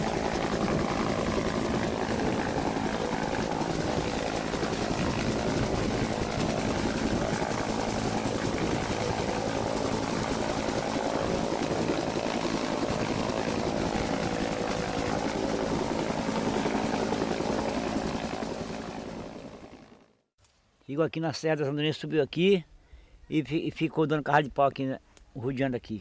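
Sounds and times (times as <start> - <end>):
helicopter engine noise: 0.0 - 20.2
helicopter rotor beating: 0.0 - 20.2.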